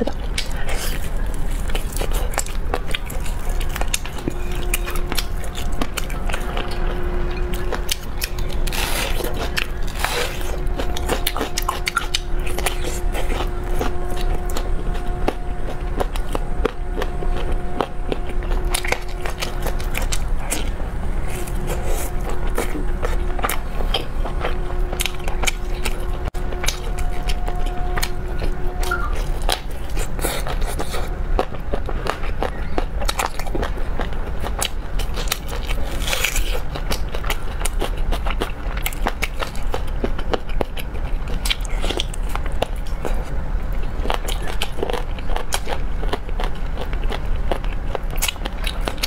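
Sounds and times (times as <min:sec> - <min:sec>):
wet chewing of meat: 0:00.0 - 0:49.0
crisp crunch of onion bite: 0:00.3 - 0:20.7, 0:21.3 - 0:43.2, 0:44.0 - 0:49.0.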